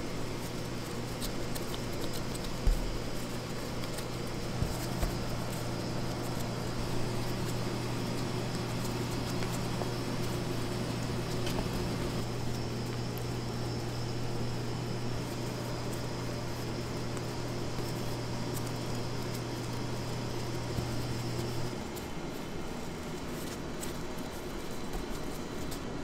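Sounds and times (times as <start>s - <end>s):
machine hum: 0.0s - 23.3s
faint high whine: 1.9s - 21.8s.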